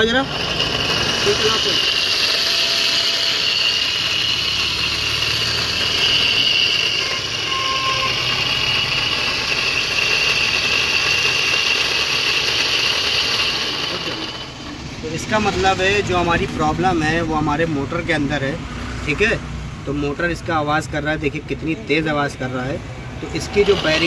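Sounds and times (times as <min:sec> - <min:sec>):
electric motor hum and whine: 0:00.0 - 0:17.2, 0:23.1 - 0:24.0.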